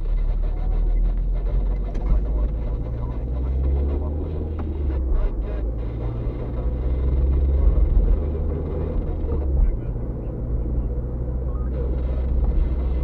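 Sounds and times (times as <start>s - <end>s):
car engine and tyre rumble: 0.0s - 13.0s.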